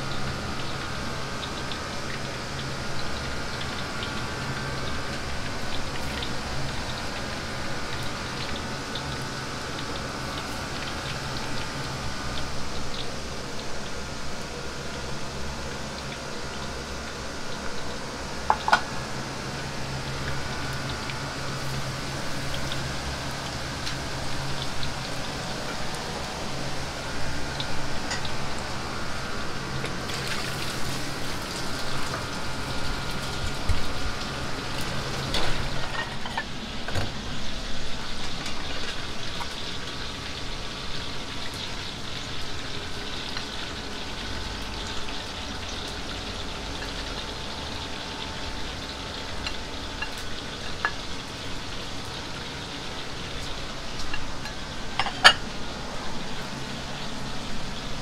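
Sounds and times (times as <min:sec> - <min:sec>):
oil sizzling: 0:00.0 - 0:58.0
kitchen utensils clinking: 0:35.4 - 0:36.5, 0:54.1 - 0:55.4.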